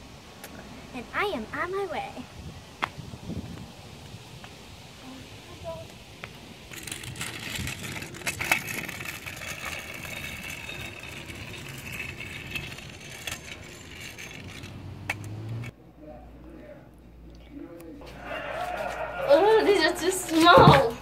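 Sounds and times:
scooter wheels rattling on asphalt: 0:05.6 - 0:15.7.

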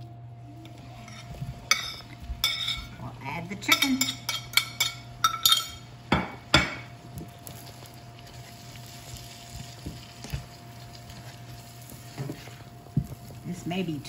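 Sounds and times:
food sizzling: 0:00.0 - 0:14.0
spatula stirring in pan: 0:00.7 - 0:06.1, 0:06.9 - 0:14.0
utensil clinking on plate: 0:01.0 - 0:02.9, 0:03.6 - 0:06.9.

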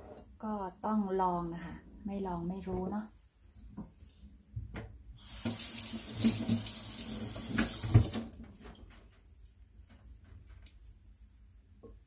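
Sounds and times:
water running from tap: 0:05.2 - 0:08.4.

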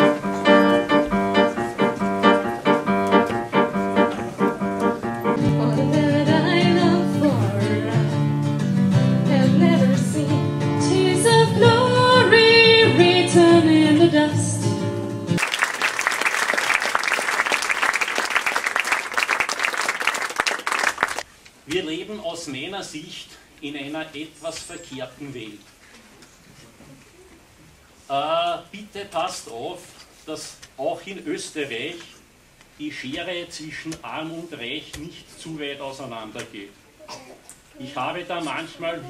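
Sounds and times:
acoustic guitar: 0:00.0 - 0:15.4
women singing: 0:05.5 - 0:08.1, 0:09.3 - 0:14.6
audience applauding: 0:15.4 - 0:21.3.

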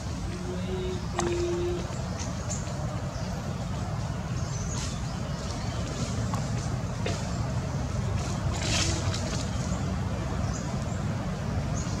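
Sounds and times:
rustling hiss: 0:00.0 - 0:12.0.

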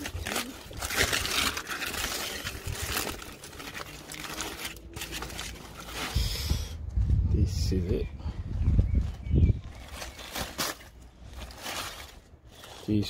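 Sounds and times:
aluminium foil crinkling: 0:00.0 - 0:06.4, 0:09.7 - 0:13.0.

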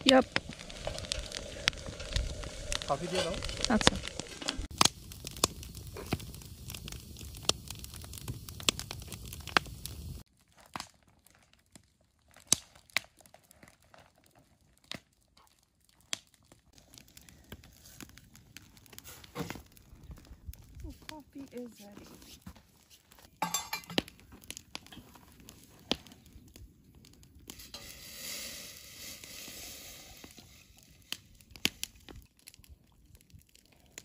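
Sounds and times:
fire hiss: 0:00.0 - 0:10.3, 0:16.7 - 0:32.3
campfire crackling and popping: 0:00.0 - 0:34.0.

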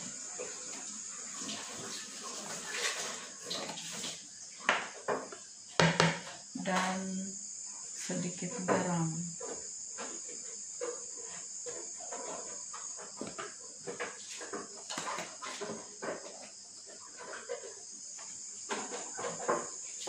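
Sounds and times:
crickets chirping: 0:00.0 - 0:20.0
spoon knocking plastic basin: 0:05.8 - 0:06.3.

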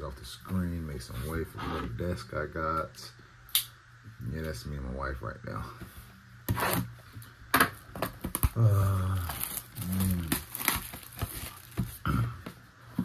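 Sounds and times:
plastic wrap crinkling and tearing: 0:08.0 - 0:12.1
low voiced grunt: 0:08.5 - 0:10.5.

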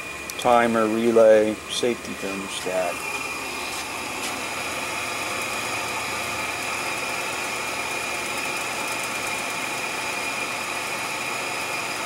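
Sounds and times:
blower fan whirring with high whine: 0:00.0 - 0:12.0.

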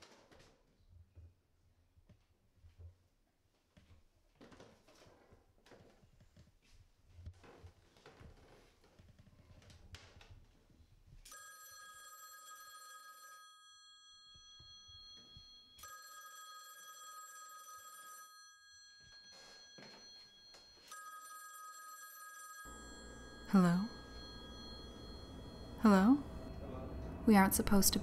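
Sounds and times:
telephone ringing: 0:11.3 - 0:28.0.

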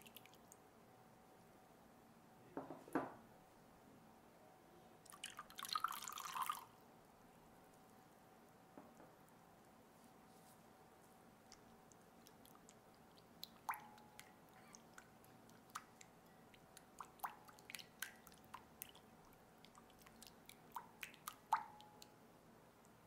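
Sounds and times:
spatula stirring liquid in bowl: 0:11.5 - 0:22.1.

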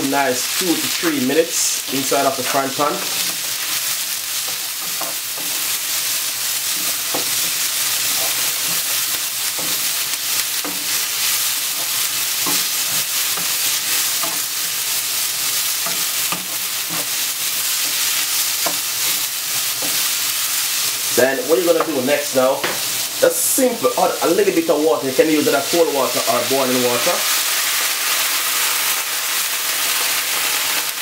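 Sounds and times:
vegetables sizzling in oil: 0:00.0 - 0:31.0
spatula scraping and tapping pan: 0:03.0 - 0:05.8, 0:06.6 - 0:14.6, 0:15.7 - 0:20.3.

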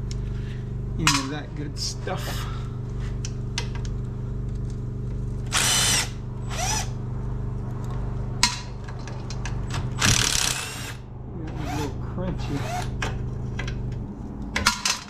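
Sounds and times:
steady low hum: 0:00.0 - 0:15.0
cordless power tool whirring: 0:05.5 - 0:07.0.

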